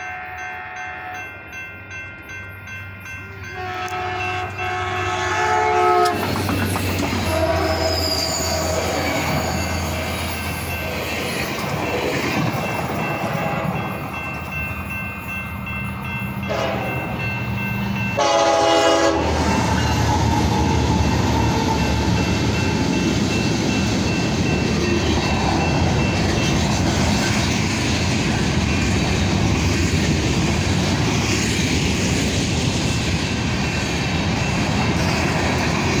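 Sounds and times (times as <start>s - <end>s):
steel wheels rumbling on rails: 0.0s - 36.0s
train horn blast: 3.5s - 6.3s, 7.2s - 9.4s, 16.4s - 17.0s, 18.2s - 21.9s
train rolling away: 5.8s - 36.0s.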